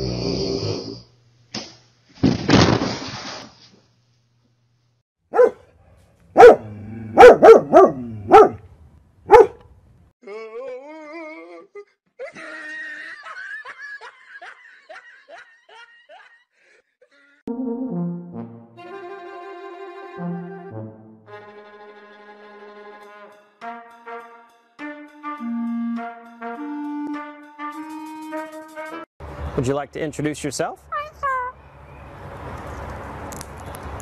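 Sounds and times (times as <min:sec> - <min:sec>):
dog barking: 0:05.3 - 0:05.8, 0:06.4 - 0:08.6, 0:09.3 - 0:09.6.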